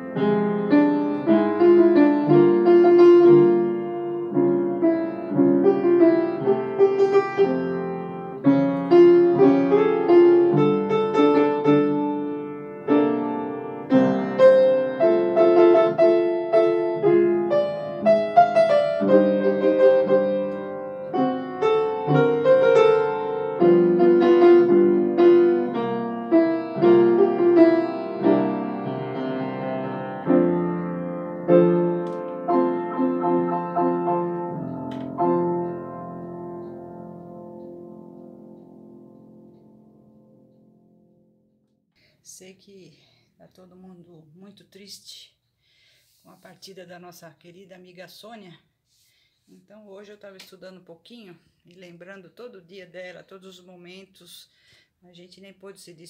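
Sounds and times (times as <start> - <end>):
slow piano piece: 0.0 - 41.6.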